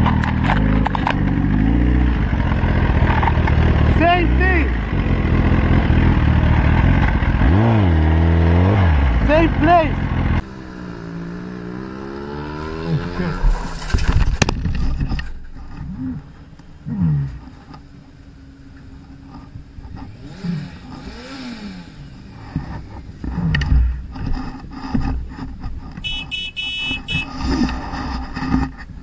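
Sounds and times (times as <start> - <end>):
motorcycle crashing into rocks: 13.4 - 15.4.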